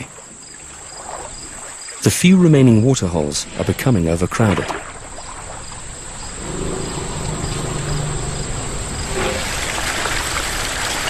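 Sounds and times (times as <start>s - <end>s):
insects chirring: 0.0s - 11.0s
outdoor noise: 0.0s - 11.0s
low hum: 5.8s - 10.9s.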